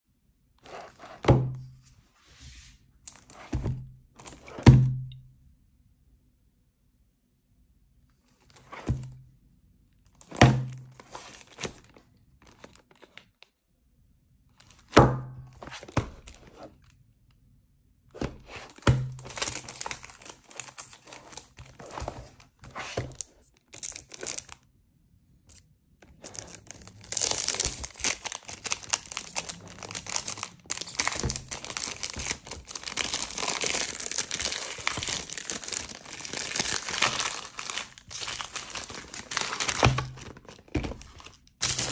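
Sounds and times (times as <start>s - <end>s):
cellophane crinkling: 10.1s - 13.4s, 18.4s - 24.6s, 26.0s - 41.9s
cellophane tearing open: 18.5s - 24.6s, 26.1s - 41.9s.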